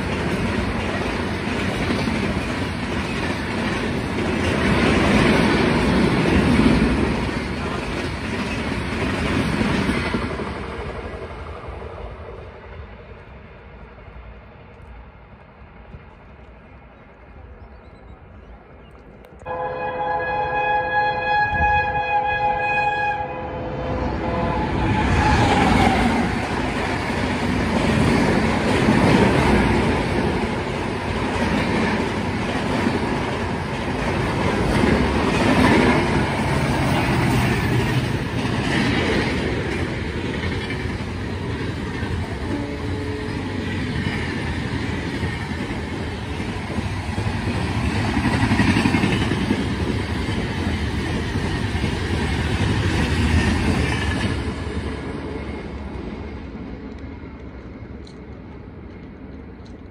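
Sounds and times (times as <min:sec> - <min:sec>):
passenger train passing at speed: 0:00.0 - 0:59.9.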